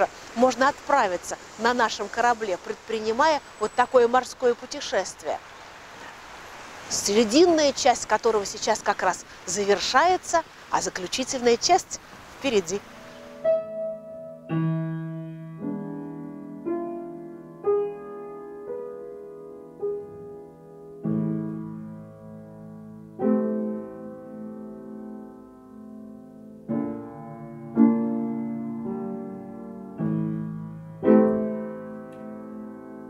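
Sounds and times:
slow solo piano: 0:12.9 - 0:33.0.

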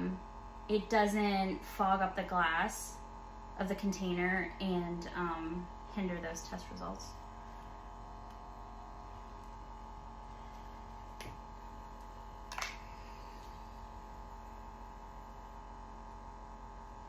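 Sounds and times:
electrical hum: 0:00.0 - 0:17.0.

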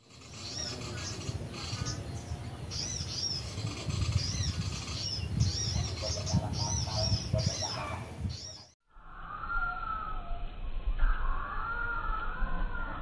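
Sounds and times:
lower bird notes: 0:00.0 - 0:13.0
low rumble: 0:08.9 - 0:13.0.

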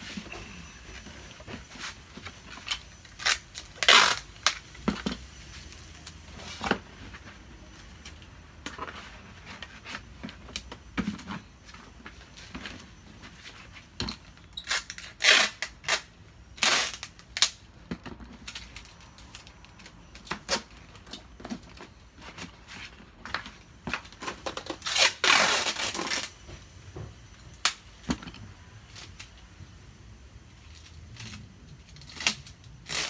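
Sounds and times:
packing tape ripping: 0:02.6 - 0:04.9, 0:14.6 - 0:17.6, 0:24.2 - 0:26.3, 0:30.7 - 0:33.0.

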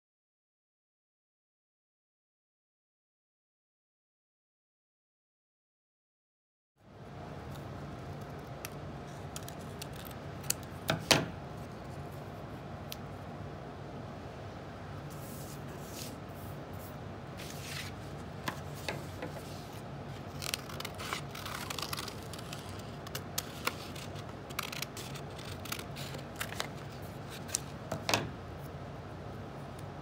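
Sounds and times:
scissors snipping paper: 0:07.5 - 0:11.0, 0:20.2 - 0:27.7
paper rustling: 0:17.4 - 0:27.8.

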